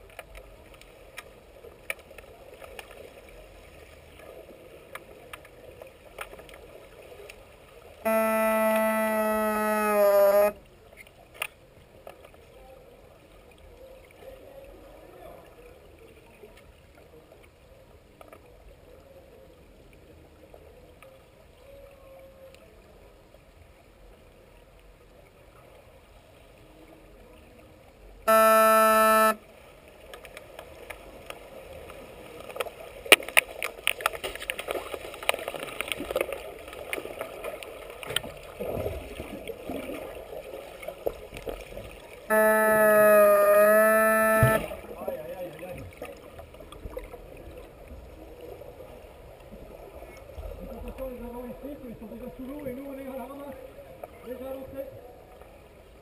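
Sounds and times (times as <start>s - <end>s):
faint water hiss: 0.0s - 56.0s
underwater signal horn: 8.0s - 10.7s, 28.2s - 29.5s, 42.3s - 44.9s
underwater clicks and knocks: 42.4s - 44.8s.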